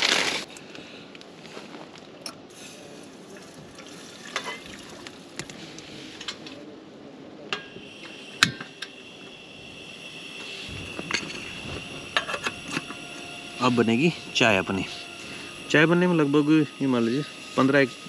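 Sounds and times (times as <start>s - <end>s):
gas flame hissing: 7.5s - 18.0s.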